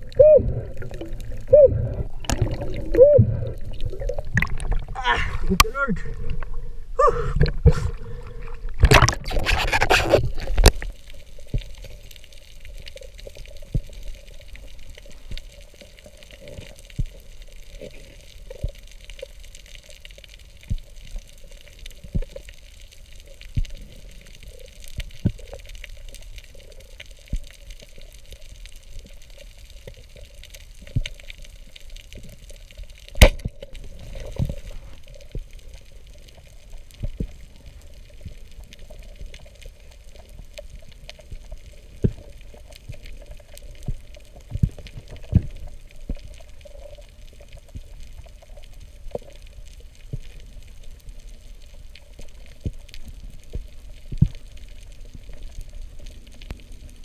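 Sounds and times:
water rushing and bubbling: 0.0 - 57.0
underwater clicks and knocks: 3.7 - 6.5, 8.7 - 10.9, 33.1 - 33.7.

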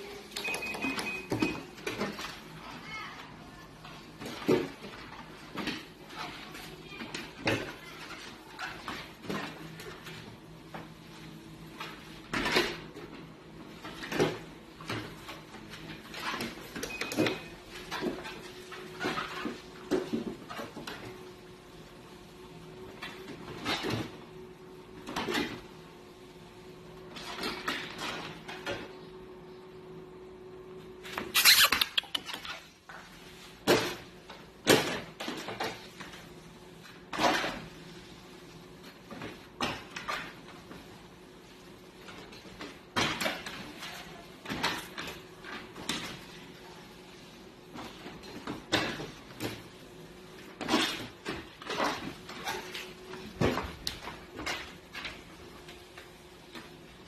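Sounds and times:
paws thumping on treadmill belt: 0.0 - 22.0, 31.0 - 57.0
treadmill humming: 0.0 - 26.1.

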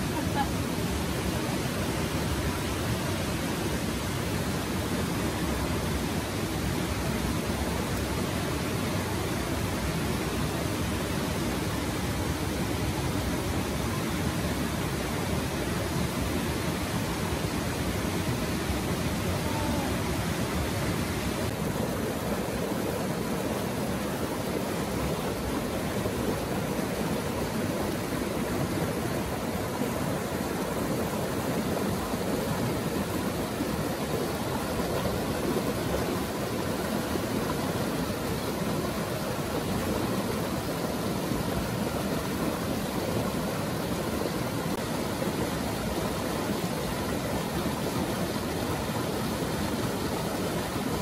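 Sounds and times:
water rushing over rocks: 0.0 - 51.0.

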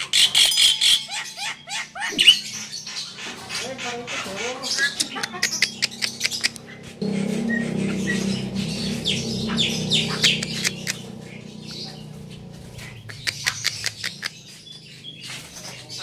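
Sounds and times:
starlings chirping and squawking: 0.0 - 16.0
low steady hum: 5.0 - 15.0.

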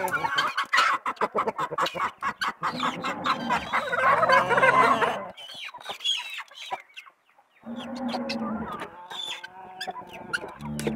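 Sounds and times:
chickens and guineafowl calling: 0.0 - 10.9.

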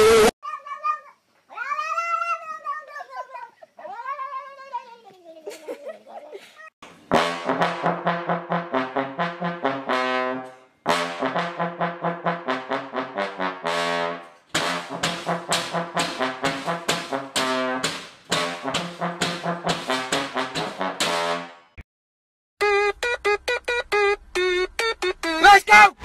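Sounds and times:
trombone playing: 7.1 - 21.7.

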